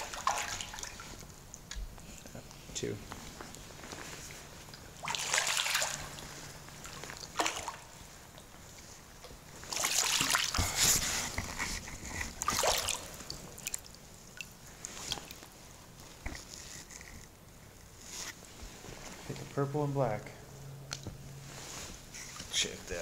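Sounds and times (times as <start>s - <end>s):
fish splashing in water: 0.0s - 1.7s, 4.9s - 8.5s, 9.6s - 16.0s.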